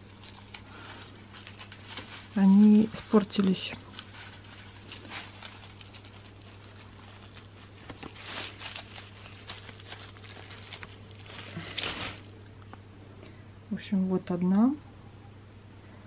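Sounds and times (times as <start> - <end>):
soft rustles: 0.0 - 12.4
steady low hum: 0.0 - 16.0.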